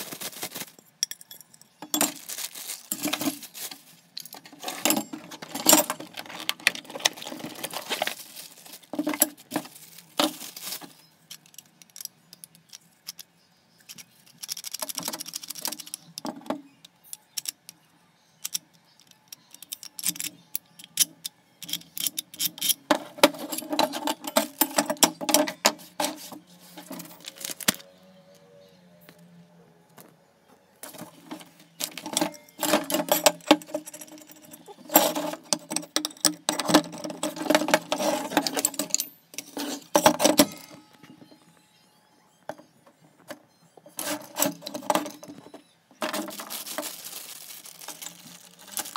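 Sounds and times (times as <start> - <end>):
rustling wrapping paper: 0.0 - 0.9, 1.9 - 11.1, 26.0 - 27.8, 46.0 - 48.9
parts clicking and knocking: 4.2 - 13.3, 18.4 - 27.8, 30.8 - 41.3, 42.4 - 46.9.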